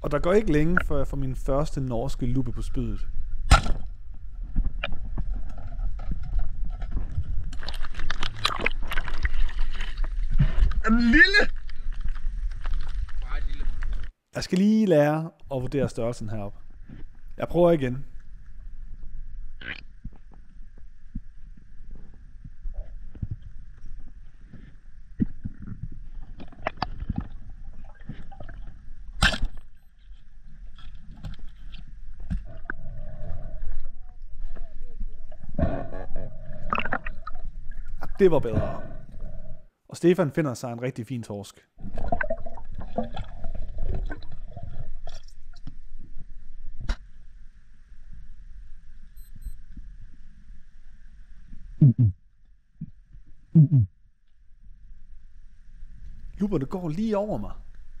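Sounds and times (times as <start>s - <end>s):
speargun firing crack underwater: 3.5s - 3.9s, 29.2s - 29.6s
splashing: 7.5s - 14.1s
underwater rumble: 30.0s - 39.7s.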